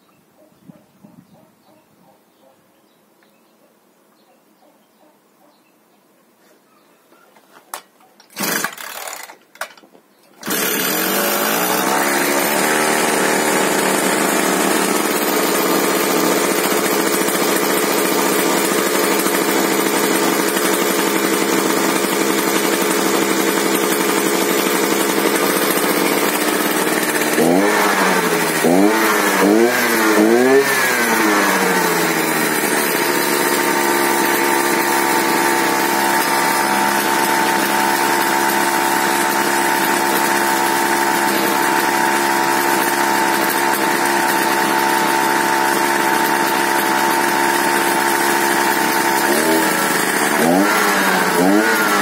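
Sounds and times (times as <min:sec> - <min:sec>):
brush cutter idling: 0:07.7 - 0:52.0
recoil starter tugs: 0:08.2 - 0:52.0
engine revving: 0:10.4 - 0:52.0.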